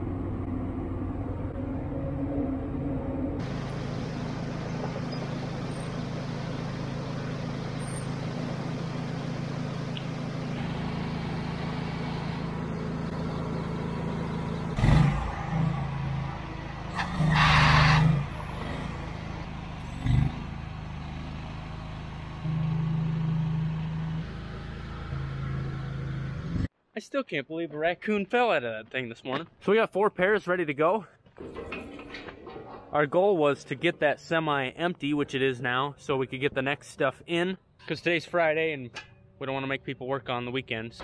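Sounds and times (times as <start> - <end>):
engine droning: 0.0 - 26.7, 31.4 - 41.0
short loud noise bursts: 17.2 - 18.2.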